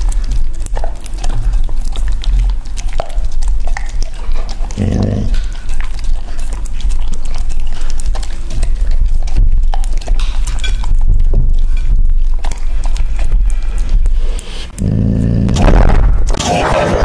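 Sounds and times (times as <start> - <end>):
dog licking and chewing: 0.0 - 16.4
tongue and teeth clicking on plate: 0.0 - 16.4.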